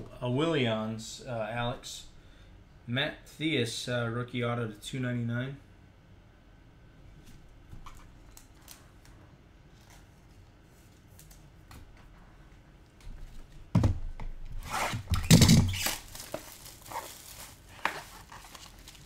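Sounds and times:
packaging crinkling and tearing: 15.0s - 19.0s.

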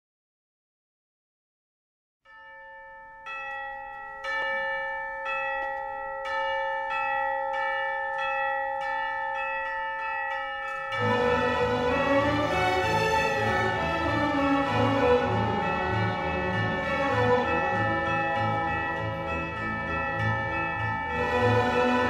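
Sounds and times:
bells ringing: 2.3s - 22.0s
orchestral music: 11.0s - 22.0s.

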